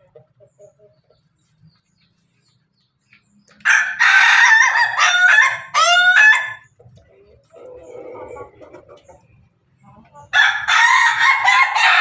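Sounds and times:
rooster crowing: 0:03.6 - 0:06.6, 0:10.4 - 0:12.0.

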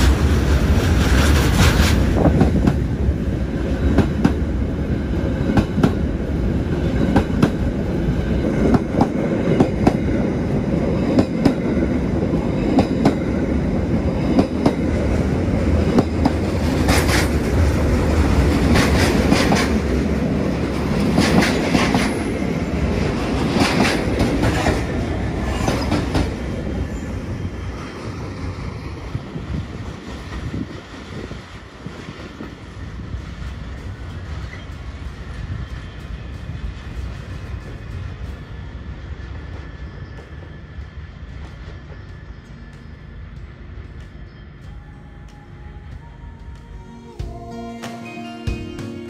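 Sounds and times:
train rumble: 0:00.0 - 0:49.0
train wheels clattering over rail joints: 0:20.8 - 0:22.3.

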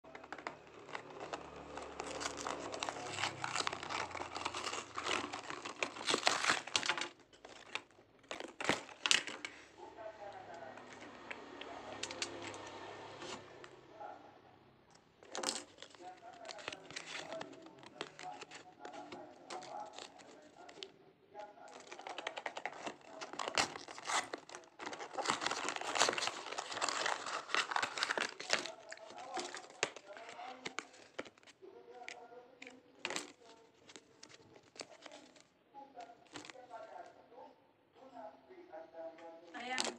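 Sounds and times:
plastic wrapping crinkling: 0:00.1 - 0:09.8, 0:15.2 - 0:20.9, 0:21.6 - 0:35.5, 0:36.1 - 0:36.6, 0:39.5 - 0:39.9
cardboard box being torn open: 0:00.2 - 0:09.4, 0:21.7 - 0:31.5.

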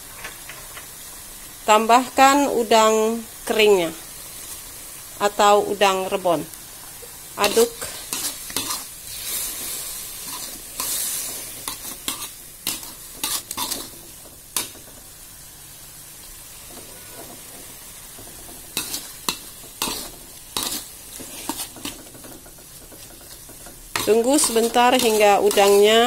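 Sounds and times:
paste sizzling in oil: 0:00.8 - 0:26.0
metal spatula scraping wok: 0:07.0 - 0:15.2, 0:16.2 - 0:26.0.

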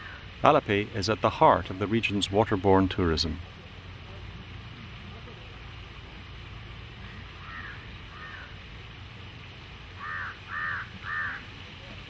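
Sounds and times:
low steady rumble: 0:00.0 - 0:11.8
crow cawing: 0:07.1 - 0:08.6, 0:10.0 - 0:11.5.

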